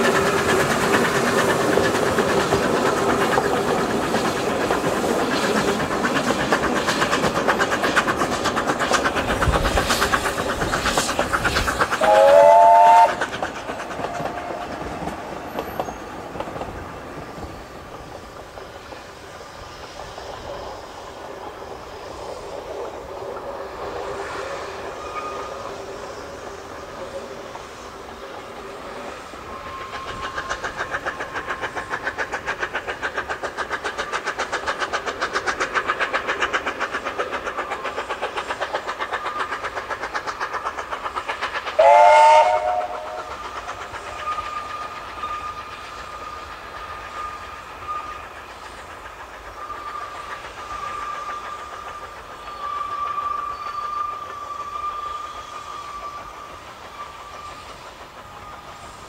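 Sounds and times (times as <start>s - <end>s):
steam locomotive exhaust beats: 0.0s - 59.0s
steam whistle blast: 12.0s - 13.2s, 41.8s - 43.4s
thin wheel squeal: 52.4s - 57.7s.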